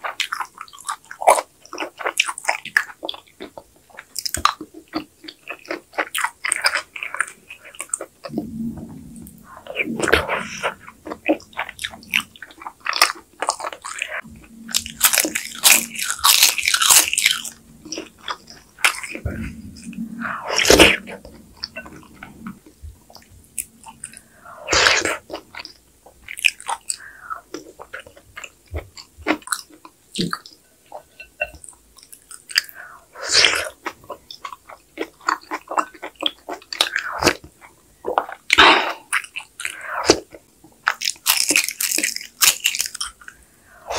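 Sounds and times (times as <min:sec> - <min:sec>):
wet chewing: 0:00.0 - 0:43.9
slurping soup: 0:08.0 - 0:27.8
crisp crunches: 0:11.3 - 0:19.2.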